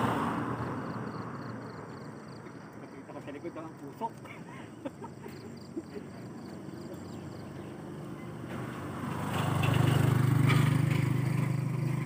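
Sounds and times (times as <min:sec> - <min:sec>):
vehicle driving past: 0:00.0 - 0:02.4, 0:06.1 - 0:12.0.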